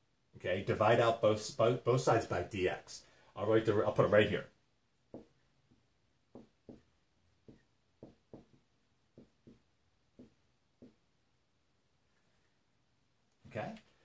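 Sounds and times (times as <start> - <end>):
marker writing on whiteboard: 5.1 - 11.2.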